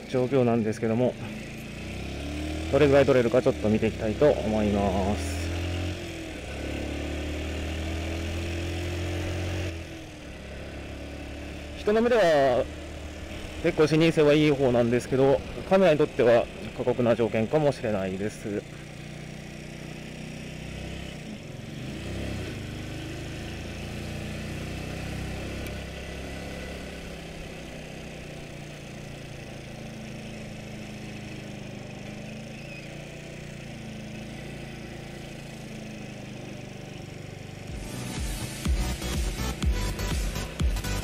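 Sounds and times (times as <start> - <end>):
motorcycle engine running: 0.0 - 41.0
music with a beat: 37.7 - 41.0.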